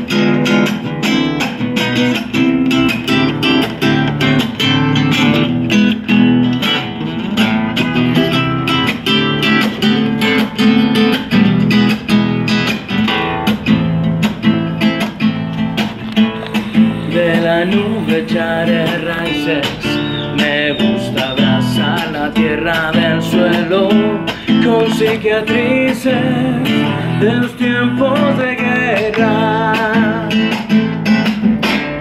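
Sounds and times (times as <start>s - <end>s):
classical guitar strummed: 0.0s - 32.0s
man singing: 16.4s - 31.0s.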